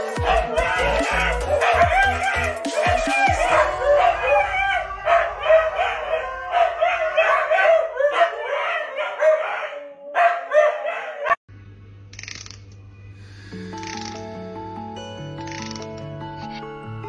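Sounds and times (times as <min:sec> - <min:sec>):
huskies howling: 0:00.0 - 0:11.4.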